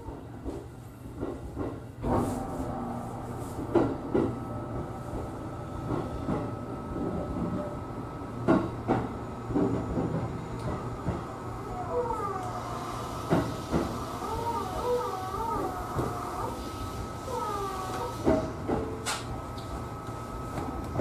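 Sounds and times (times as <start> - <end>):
train wheels rumbling: 8.4 - 16.5.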